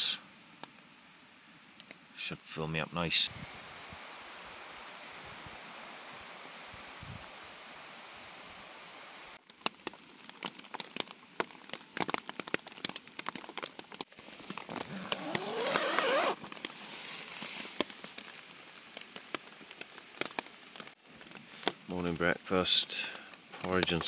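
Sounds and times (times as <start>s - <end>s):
rain hissing: 2.1s - 9.4s, 14.1s - 24.0s
raindrops tapping on tent: 9.4s - 24.0s.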